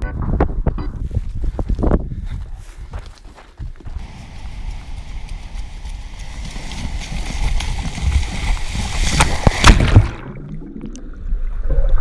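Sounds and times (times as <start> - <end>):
wind rumble on microphone: 0.0 - 10.0
breaking surf splashing: 4.0 - 10.4.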